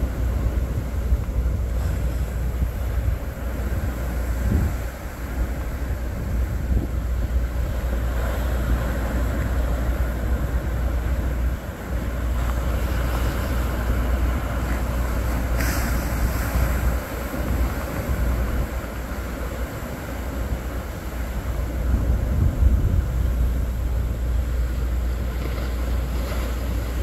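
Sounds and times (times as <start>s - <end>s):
ocean surf breaking: 0.0s - 27.0s
wind buffeting microphone: 0.0s - 27.0s.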